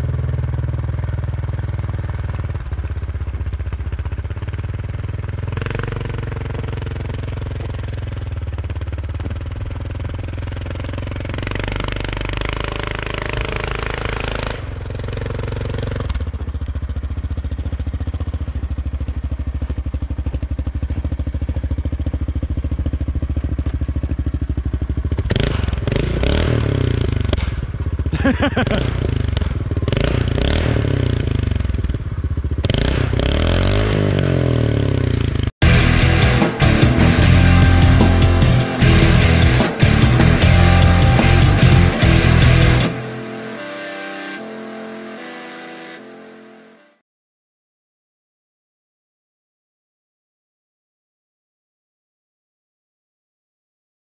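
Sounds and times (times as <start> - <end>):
atv engine revving: 0.0 - 43.6.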